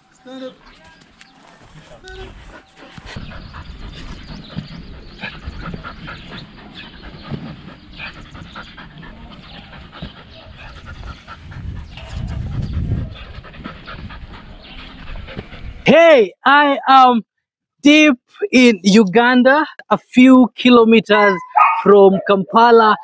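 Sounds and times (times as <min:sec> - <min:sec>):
dog panting: 0:00.6 - 0:15.8, 0:21.2 - 0:23.0
low microphone rumble: 0:01.8 - 0:15.9.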